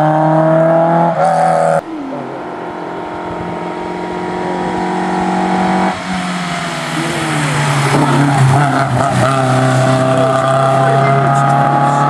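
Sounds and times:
rally car engine running hard: 2.4s - 12.0s.

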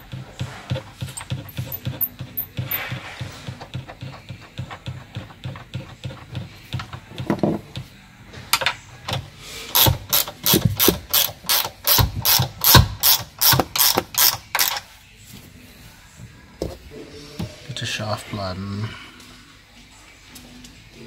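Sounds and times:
ratcheting spanner clicking: 9.7s - 14.8s.

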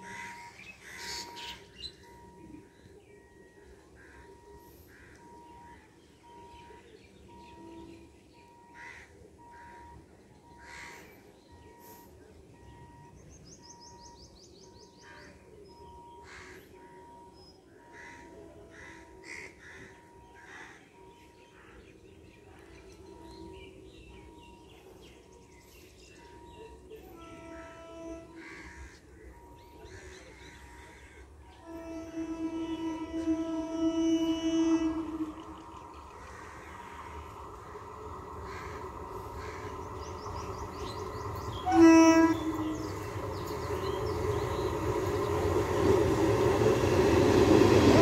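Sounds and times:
faint electronic beep: 0.0s - 30.9s
birds calling: 17.8s - 48.0s.

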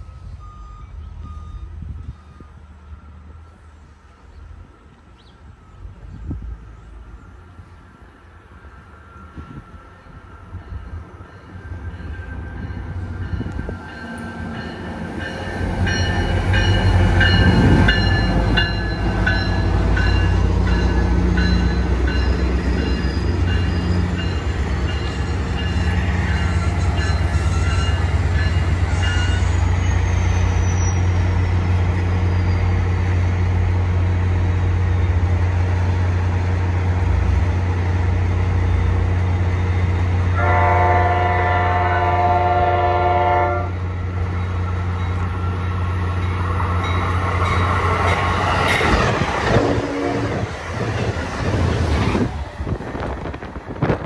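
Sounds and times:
diesel locomotive drone: 0.0s - 54.0s
train horn: 40.3s - 43.8s, 49.5s - 50.5s.

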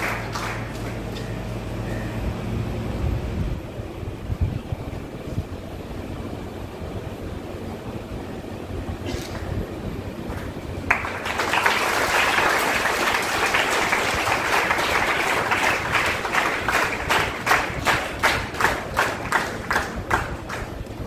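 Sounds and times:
audience applause: 0.0s - 1.1s, 10.3s - 20.9s
rhythmic clapping in unison: 0.0s - 1.4s, 10.3s - 21.0s.

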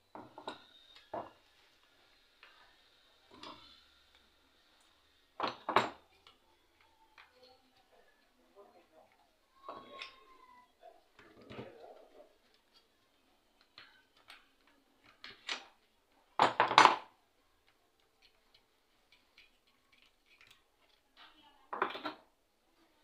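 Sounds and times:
metal tools clicking and clinking: 0.1s - 1.4s, 3.3s - 8.4s, 9.1s - 10.4s, 18.0s - 22.2s.

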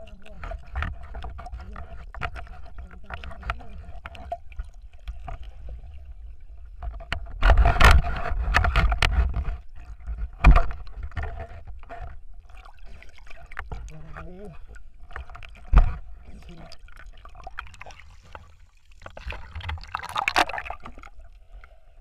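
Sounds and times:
underwater knocks and clicks: 0.0s - 21.7s
rush of water: 12.0s - 21.6s.

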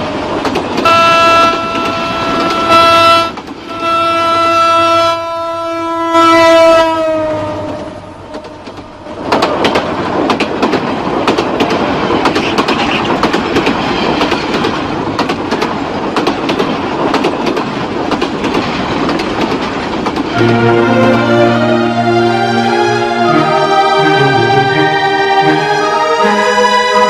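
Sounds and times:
wheels clacking over rail joints: 0.0s - 3.8s, 7.6s - 20.8s
train rumbling on rails: 0.0s - 27.0s
organ-like music chords: 20.4s - 27.0s.

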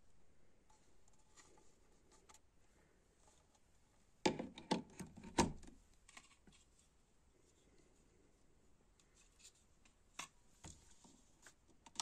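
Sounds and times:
plastic housing clicks and knocks: 4.3s - 5.7s.

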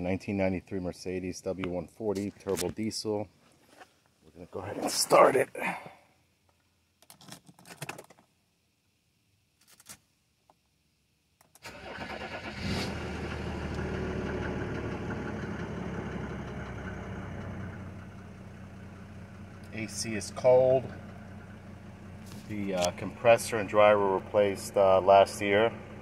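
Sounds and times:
diesel engine starting and idling: 11.6s - 26.0s.

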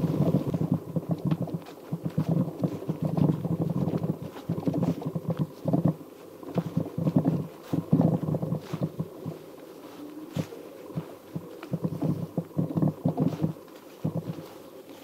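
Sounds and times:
low rumble: 0.0s - 9.4s
bicycle rattling over rough ground: 0.0s - 15.0s.

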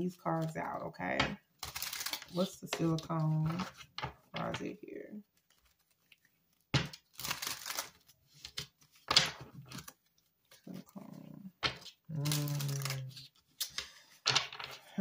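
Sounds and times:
cards being shuffled: 1.6s - 4.6s, 5.3s - 10.9s, 11.6s - 14.9s.

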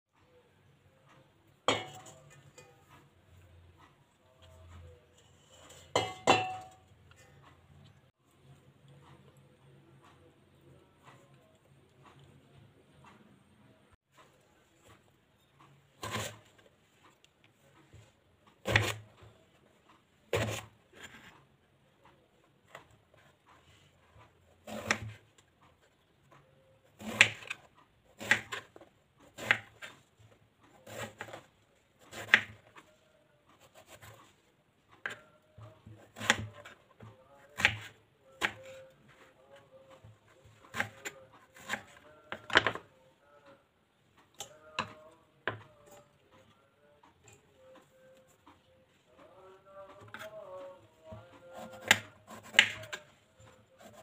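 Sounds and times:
knife chopping on cutting board: 16.0s - 16.5s, 18.6s - 19.1s, 20.3s - 21.3s, 24.6s - 25.2s, 27.0s - 28.7s, 29.4s - 29.9s, 30.8s - 32.7s, 35.0s - 36.8s, 40.6s - 42.8s, 51.1s - 53.1s.

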